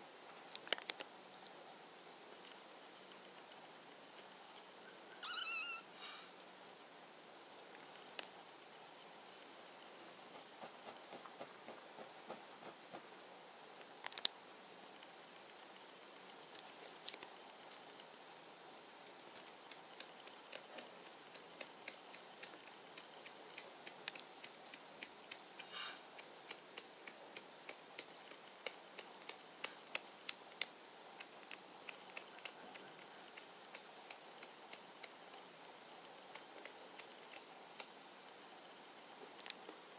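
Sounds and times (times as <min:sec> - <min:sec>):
room hiss: 0:00.0 - 0:39.9
faint irregular clicks: 0:00.4 - 0:01.6, 0:13.8 - 0:14.4, 0:15.0 - 0:38.4, 0:39.2 - 0:39.8
kitten mewing: 0:05.2 - 0:06.0.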